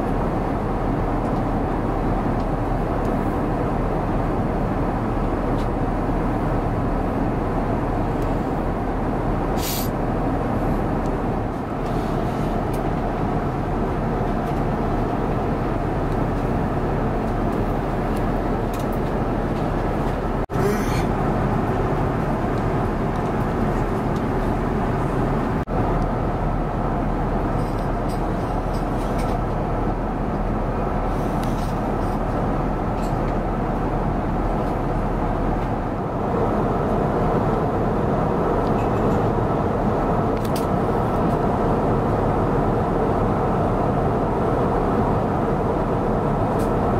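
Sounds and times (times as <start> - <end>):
airliner cabin engine roar: 0.0 - 46.9.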